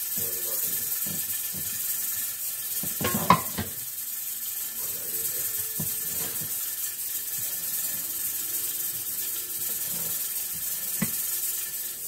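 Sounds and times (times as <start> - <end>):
steady hiss: 0.0 - 12.0
kitchenware clattering: 2.8 - 3.8, 5.7 - 6.6.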